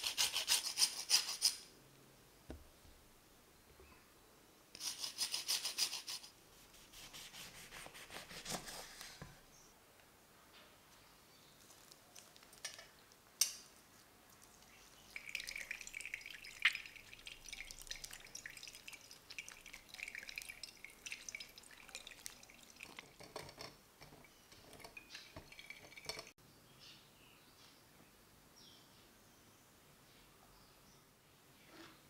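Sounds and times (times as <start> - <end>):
juice splashing and dripping: 14.3 - 26.4.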